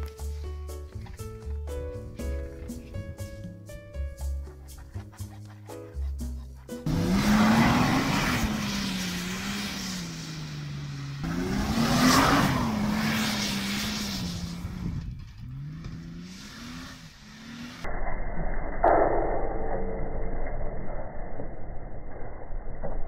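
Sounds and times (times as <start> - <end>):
wheels spinning on dirt: 6.8 - 17.9
rush of flung dirt: 6.9 - 17.8
car engine revving hard: 6.9 - 17.9.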